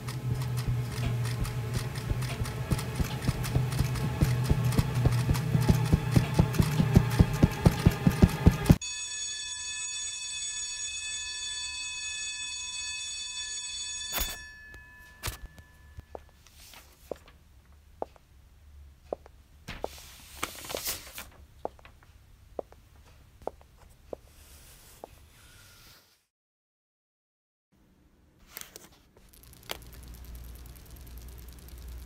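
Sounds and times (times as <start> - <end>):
alarm tone ringing: 8.0 - 16.3
short bursts of noise: 29.2 - 32.0.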